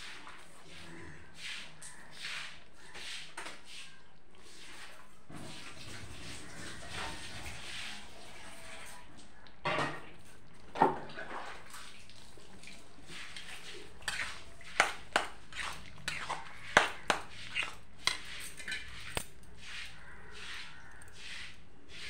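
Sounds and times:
simmering gravy hiss: 11.6s - 17.9s.

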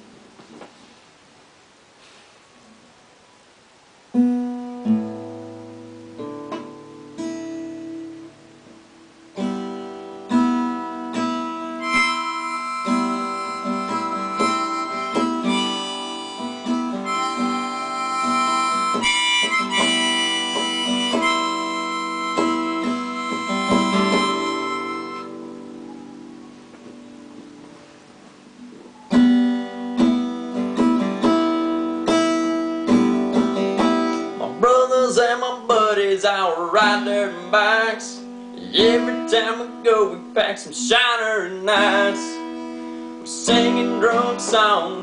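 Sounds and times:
acoustic guitar strumming: 4.1s - 45.0s
harmonica melody: 10.5s - 26.0s.

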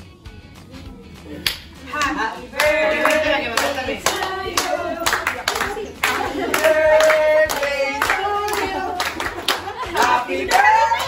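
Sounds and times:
people clapping in time: 1.4s - 11.0s
group of people singing: 1.9s - 11.0s.

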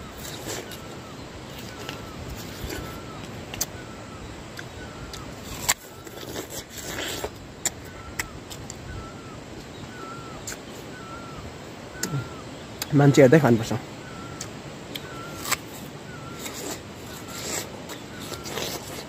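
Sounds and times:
bird chirping: 0.0s - 19.0s
crunching bites of pear: 14.4s - 15.8s, 16.4s - 19.0s.

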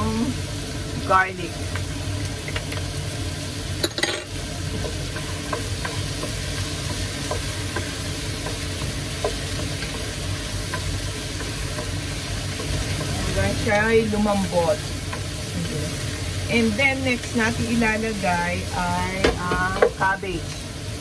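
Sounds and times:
vegetables sizzling in oil: 0.0s - 21.0s
wooden spoon stirring: 4.6s - 15.5s.

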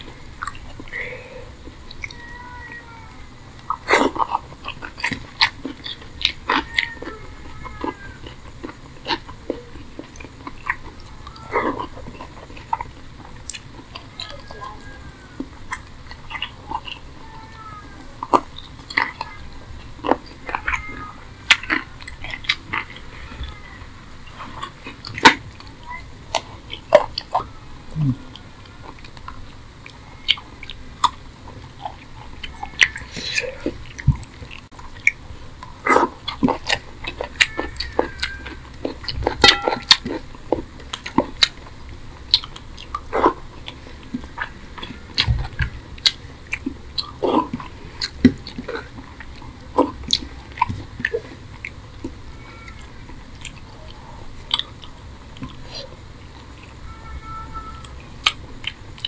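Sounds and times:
chewing food: 0.0s - 56.9s, 57.6s - 59.0s
wet mouth clicks and smacks: 1.8s - 2.2s.

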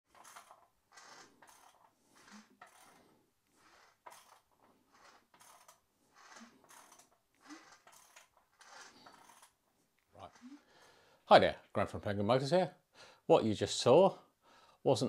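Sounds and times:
faint mechanical clicks and scrapes: 0.1s - 11.0s.

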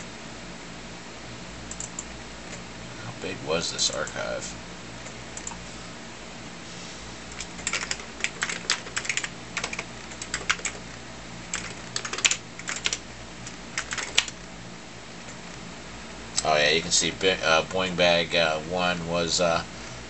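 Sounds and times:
steady low hum: 0.0s - 20.0s
typing on a computer keyboard: 1.7s - 2.1s, 7.4s - 10.8s, 11.5s - 13.0s, 13.8s - 14.4s.

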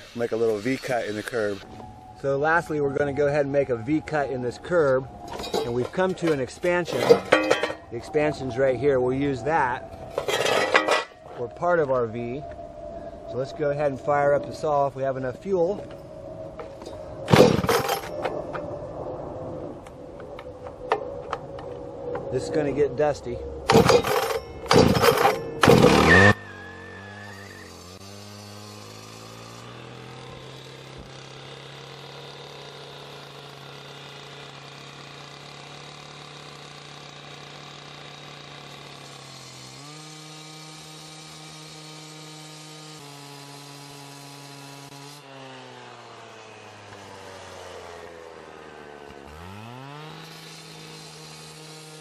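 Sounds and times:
saw cutting concrete: 0.0s - 12.1s, 17.3s - 18.2s, 23.2s - 52.0s
cut-off saw engine revving: 16.6s - 18.2s, 23.6s - 52.0s.

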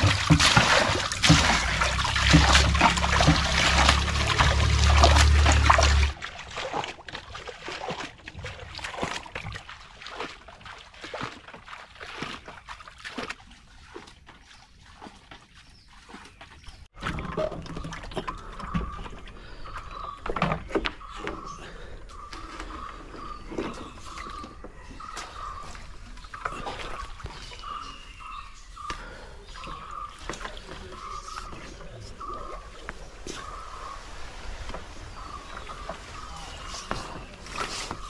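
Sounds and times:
water splashing and pouring: 0.0s - 20.8s, 32.2s - 38.0s.

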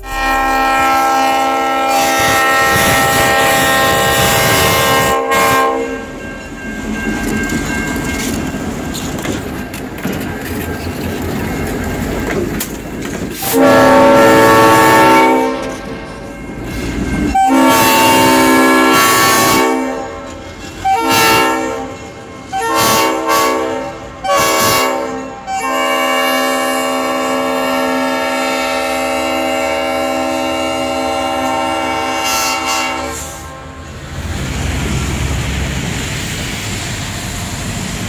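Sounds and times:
locomotive air horn blasts: 0.0s - 6.1s, 13.4s - 15.9s, 17.3s - 34.0s
diesel locomotive rumbling: 0.0s - 38.0s.

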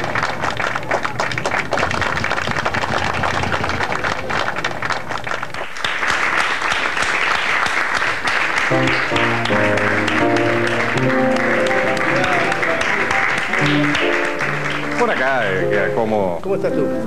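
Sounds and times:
audience applauding: 0.0s - 16.2s
band playing: 8.6s - 17.0s.

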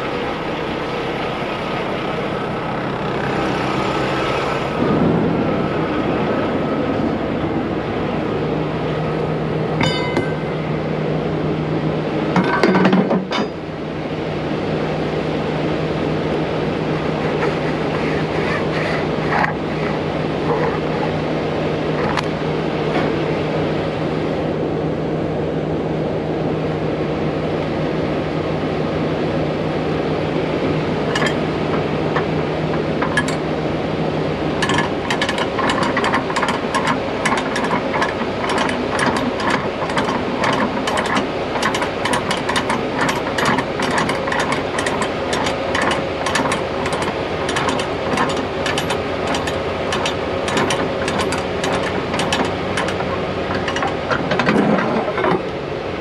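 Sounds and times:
truck engine humming: 0.0s - 26.5s, 27.4s - 56.0s
fast metallic rattle: 34.6s - 55.4s.

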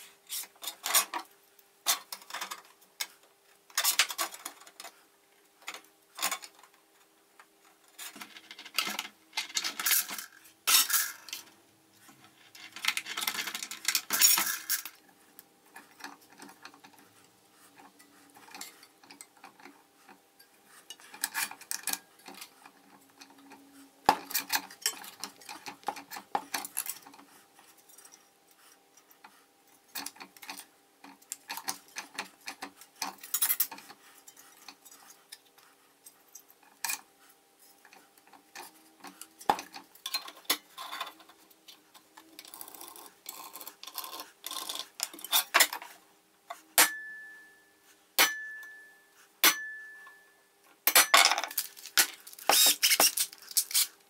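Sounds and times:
metal tools clinking on workbench: 50.9s - 53.9s.

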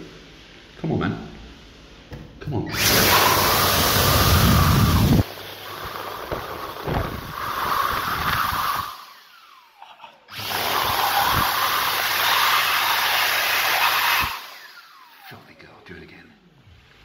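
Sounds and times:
hand dryer blowing air: 0.0s - 9.7s, 10.3s - 15.4s
motor winding down whine: 2.7s - 15.4s.

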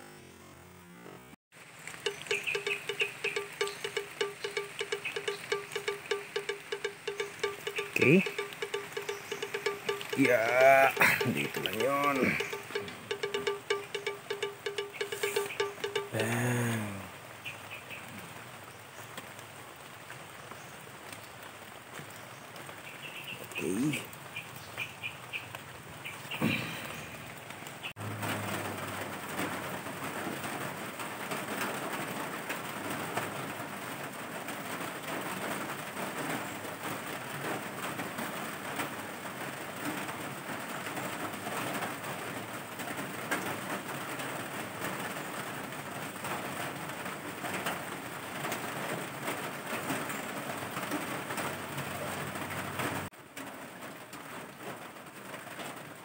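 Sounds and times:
steady dense hiss: 1.6s - 17.5s
birds calling: 1.9s - 16.4s, 17.2s - 18.4s, 22.5s - 27.9s.

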